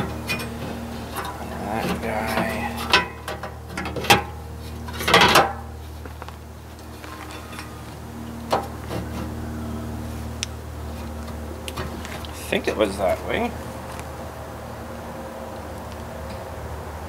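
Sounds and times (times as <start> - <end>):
sheet metal clanking and scraping: 0.0 - 5.8
steady low hum: 0.0 - 17.0.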